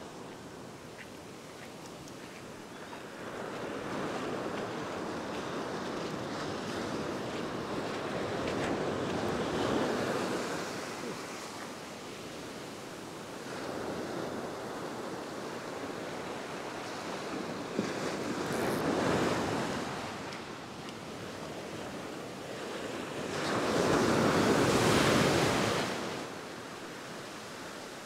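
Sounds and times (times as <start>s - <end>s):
ocean surf breaking: 2.8s - 26.4s.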